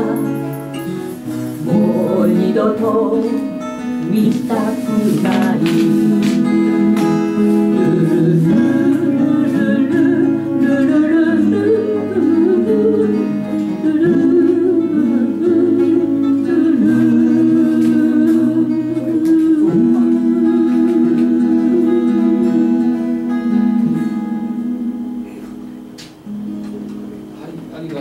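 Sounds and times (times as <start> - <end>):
acoustic guitars strumming: 0.0 - 28.0
person humming wordless line: 4.0 - 25.8.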